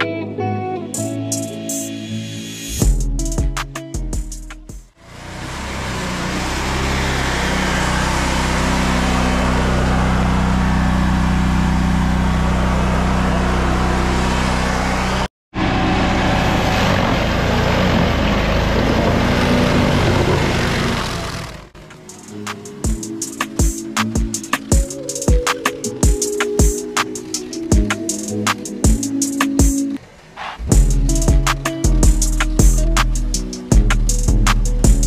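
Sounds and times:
engine humming: 2.8s - 35.0s
cutter wheel grinding stump: 5.0s - 21.9s.

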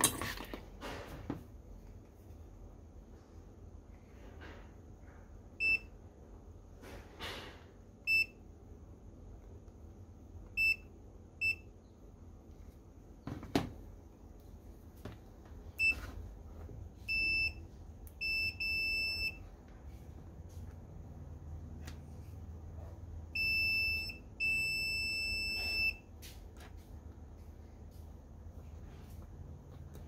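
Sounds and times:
multimeter continuity beeps: 5.6s - 6.0s, 8.0s - 8.4s, 10.5s - 11.8s, 17.0s - 19.5s, 23.3s - 26.1s.

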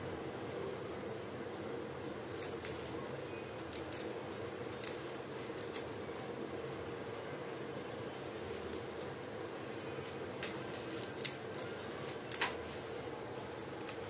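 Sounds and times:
rat gnawing crunching clicks: 2.1s - 12.6s, 13.5s - 14.0s.

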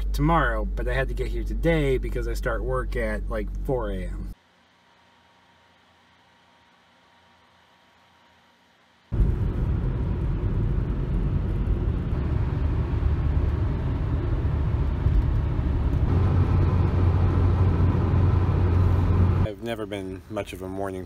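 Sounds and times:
car cabin road noise: 9.1s - 19.5s.

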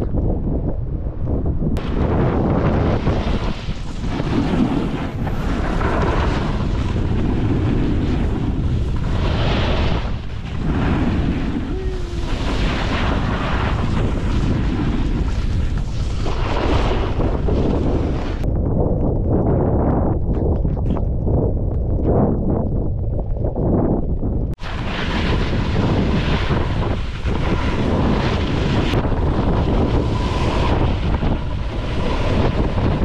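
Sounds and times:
wind buffeting microphone: 0.0s - 33.0s
snowboard scraping on snow: 1.8s - 18.4s, 24.6s - 33.0s.

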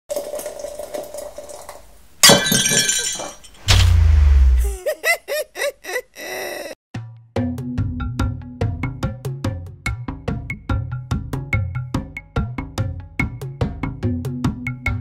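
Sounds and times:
glass shattering crash: 2.2s - 4.3s.

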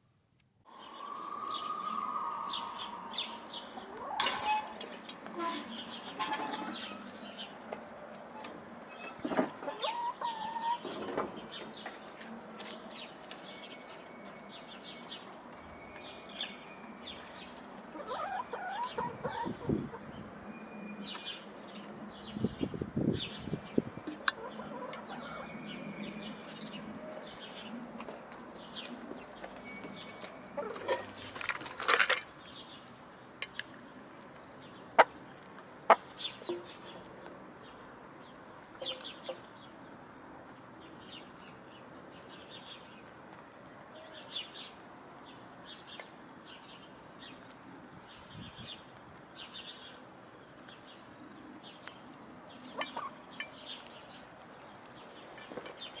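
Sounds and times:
hens clucking: 0.8s - 5.0s, 9.1s - 11.4s, 17.9s - 20.2s, 24.1s - 25.5s, 52.7s - 53.2s.

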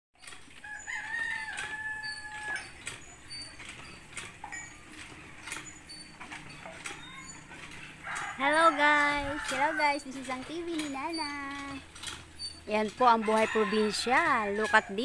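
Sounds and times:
rooster crowing: 0.6s - 2.8s, 8.0s - 10.0s, 13.2s - 15.0s.

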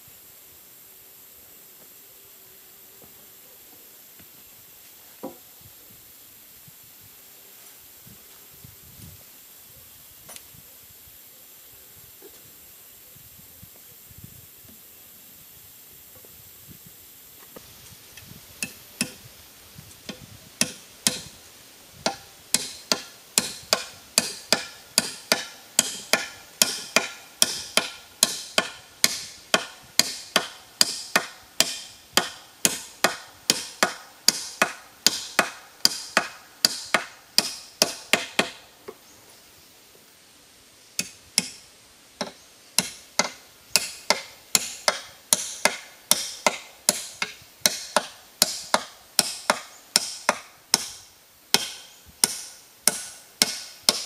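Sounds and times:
blade chopping into wooden pole: 22.0s - 38.6s, 42.8s - 54.0s.

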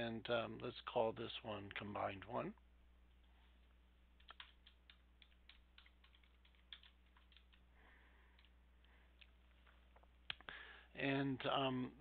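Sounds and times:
faint keyboard typing: 3.1s - 10.5s.

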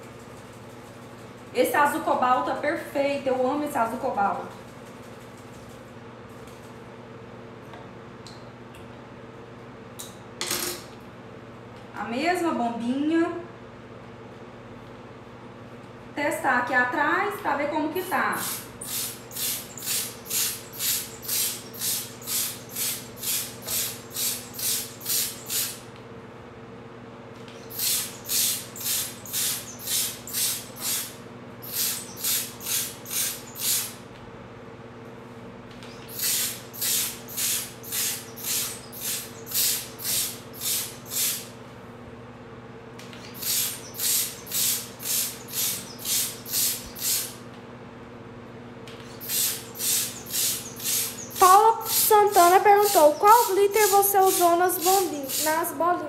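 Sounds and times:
steady low hum: 0.0s - 56.0s
paint sprayer hissing spurts: 18.3s - 25.9s, 27.5s - 34.0s, 35.9s - 41.5s, 43.1s - 47.4s, 49.0s - 55.8s.

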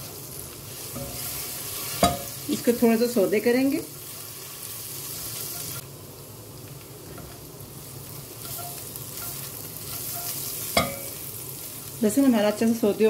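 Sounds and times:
garlic sizzling in butter: 0.0s - 13.0s
spatula stirring in pot: 8.3s - 11.2s.

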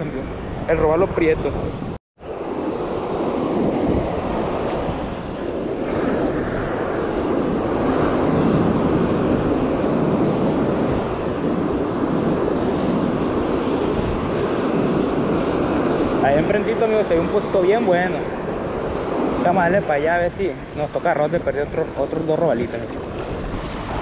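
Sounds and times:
ocean surf breaking on sand: 2.2s - 24.0s.

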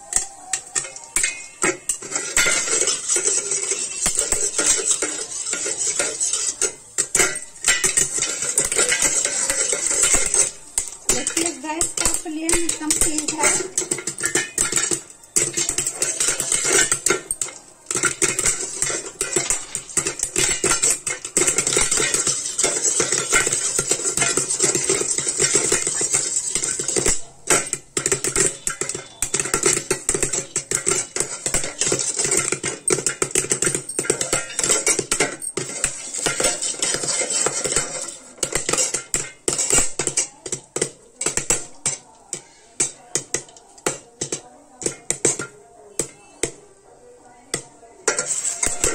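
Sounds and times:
popcorn popping in a covered pan: 0.0s - 48.9s.

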